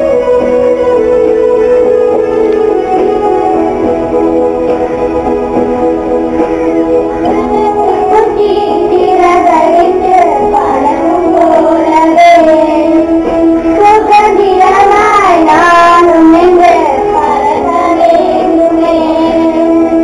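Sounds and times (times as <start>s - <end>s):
girl singing over instrumental backing: 7.2s - 20.0s.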